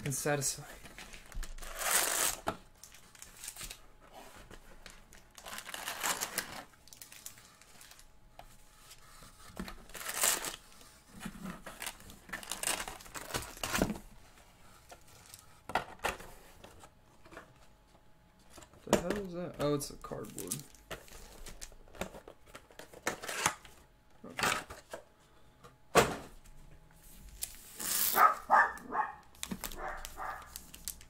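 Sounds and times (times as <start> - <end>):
foil packs crinkling: 1.2 - 3.8, 5.0 - 8.1, 9.8 - 10.7, 11.7 - 13.8, 27.3 - 31.0.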